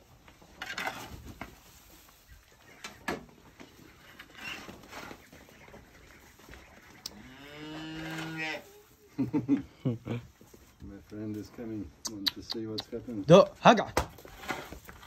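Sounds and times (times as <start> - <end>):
cow mooing: 7.1 - 8.6.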